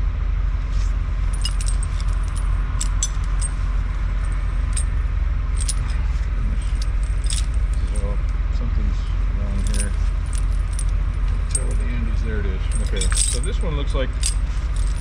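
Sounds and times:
steady low rumble: 0:00.0 - 0:15.0
snow chains clinking: 0:01.3 - 0:05.0, 0:05.6 - 0:08.2, 0:09.5 - 0:15.0.

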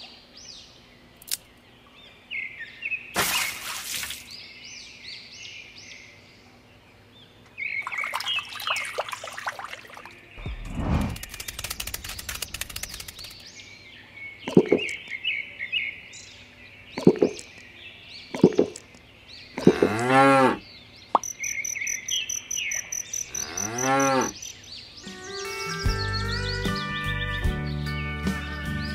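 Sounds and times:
faint chirping: 0:10.0 - 0:15.8, 0:21.1 - 0:24.7
cow mooing: 0:19.6 - 0:20.6, 0:23.3 - 0:24.4.

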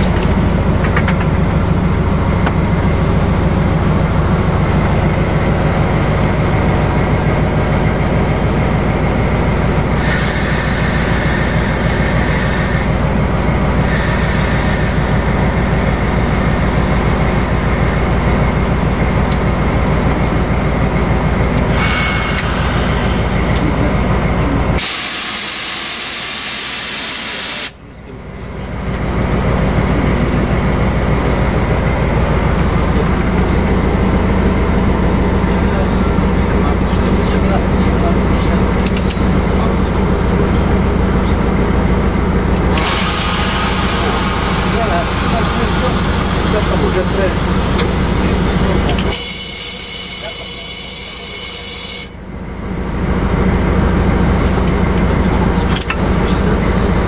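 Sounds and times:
locomotive diesel engine running: 0:00.0 - 0:57.0
compressed air hissing: 0:10.0 - 0:12.9, 0:13.8 - 0:15.2, 0:21.7 - 0:23.6, 0:24.8 - 0:27.8, 0:42.7 - 0:52.2.

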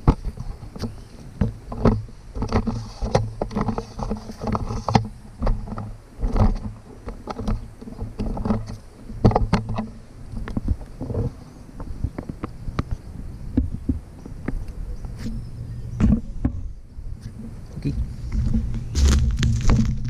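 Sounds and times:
footsteps scuffing on a roof: 0:18.3 - 0:20.0.

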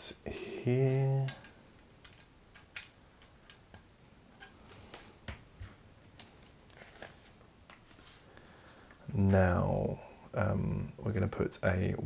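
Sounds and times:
plastic bricks clicking: 0:01.2 - 0:03.8.

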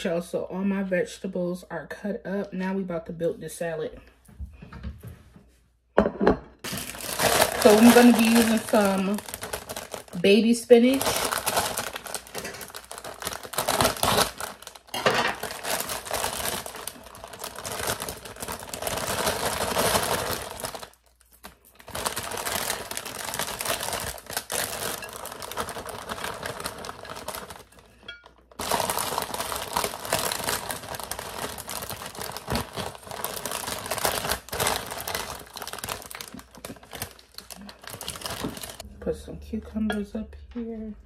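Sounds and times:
plastic bag crinkling: 0:06.6 - 0:38.9.

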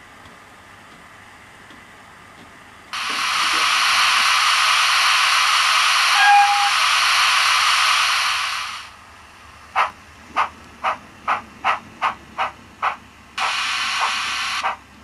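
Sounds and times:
steam hiss through small speaker: 0:03.0 - 0:09.0, 0:13.4 - 0:14.8.

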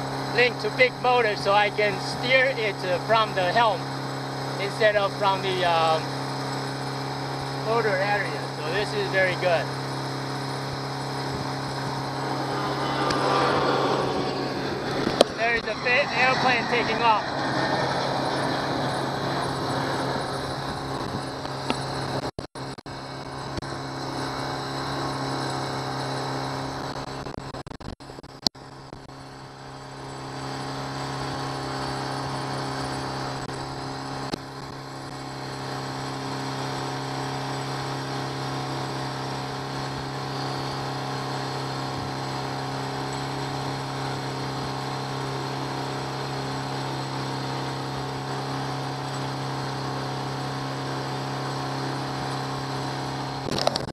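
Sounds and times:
outboard motor running: 0:00.0 - 0:53.9
wind noise: 0:11.2 - 0:22.2.

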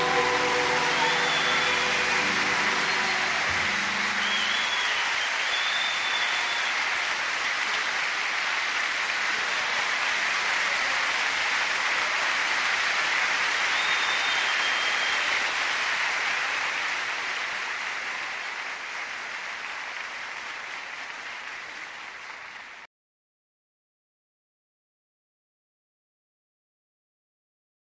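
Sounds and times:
short high whistles: 0:00.0 - 0:06.8, 0:13.6 - 0:15.7
crowd applauding: 0:00.0 - 0:22.9.

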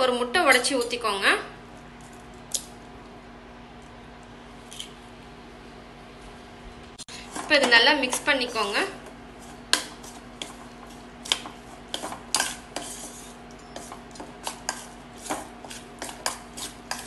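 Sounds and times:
metal spoon scraping steel bowl: 0:11.9 - 0:17.0.

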